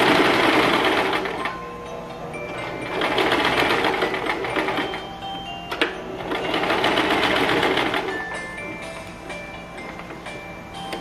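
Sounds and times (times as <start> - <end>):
electric sewing machine stitching: 0.0 - 1.5, 2.6 - 5.1, 6.2 - 8.3.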